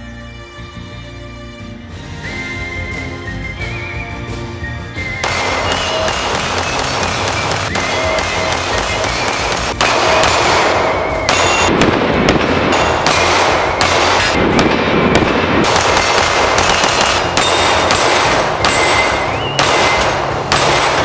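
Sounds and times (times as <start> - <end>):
background music: 0.0 - 21.0
pistol shots: 5.2 - 21.0.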